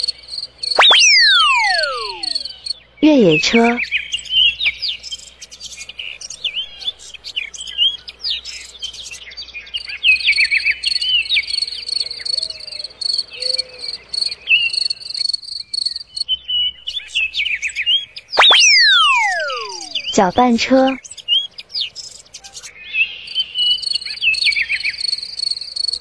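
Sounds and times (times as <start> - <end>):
birds chirping and whistling: 0.8 - 2.6, 16.6 - 20.4
insect chirping in pulses: 0.8 - 2.6, 18.4 - 20.2.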